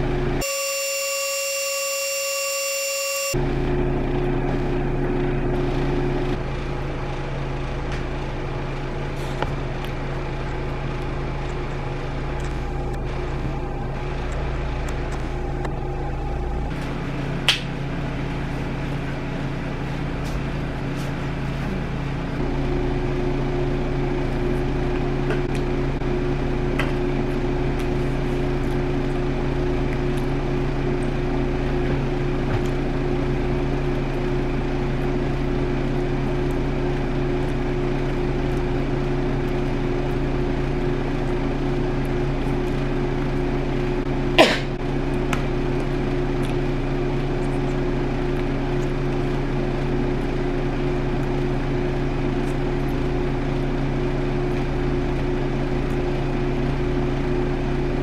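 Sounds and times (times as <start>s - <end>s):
low machine hum: 0.0s - 58.0s.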